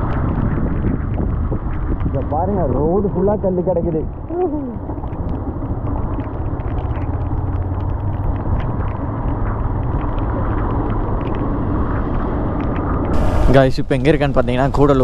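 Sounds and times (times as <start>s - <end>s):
motorcycle rumble on wet road: 0.0s - 15.0s
light ticks: 4.1s - 13.2s.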